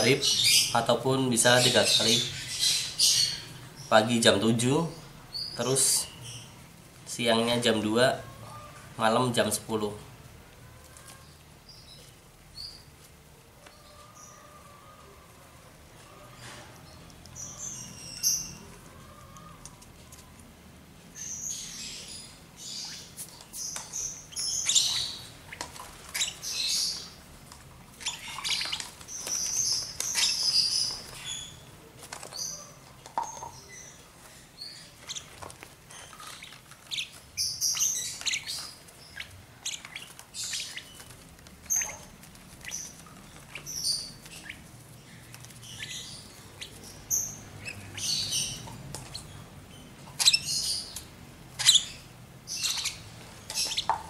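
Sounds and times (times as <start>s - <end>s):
chicks chirping: 28.0s - 54.0s.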